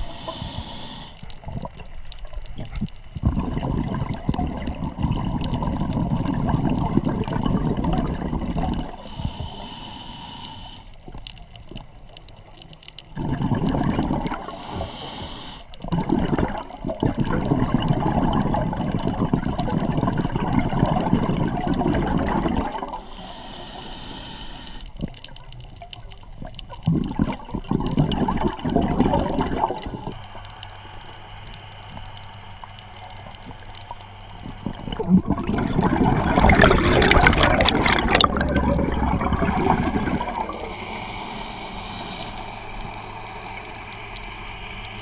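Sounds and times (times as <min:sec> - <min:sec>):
underwater exhaled bubbles rushing: 0:00.0 - 0:09.7, 0:13.1 - 0:15.1, 0:15.8 - 0:23.4, 0:25.0 - 0:30.5, 0:33.2 - 0:44.0.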